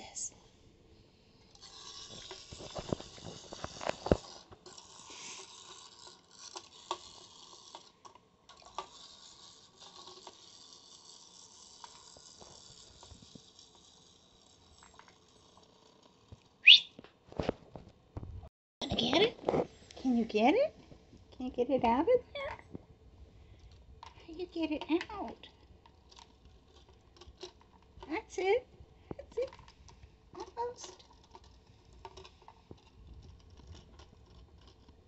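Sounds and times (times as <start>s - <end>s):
clockwork motor whirring: 1.5s - 16.5s
high rising squeak: 16.6s - 17.0s.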